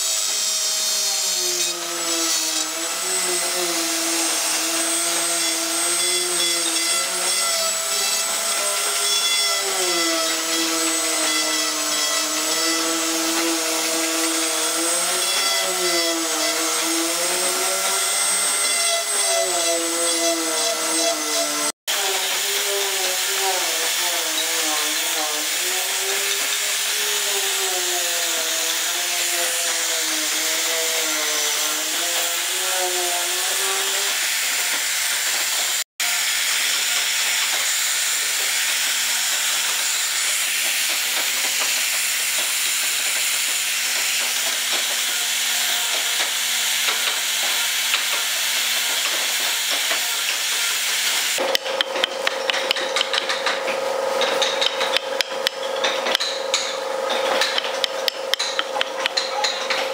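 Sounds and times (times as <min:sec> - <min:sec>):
angle grinder sanding wood: 0:00.0 - 0:59.9
mallet tapping chisel: 0:51.4 - 0:53.6, 0:54.2 - 0:59.8.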